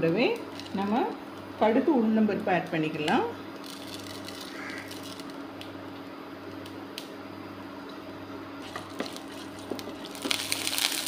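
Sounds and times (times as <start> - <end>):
steady low hum: 0.0 - 11.0
seeds popping in hot oil: 8.6 - 11.0.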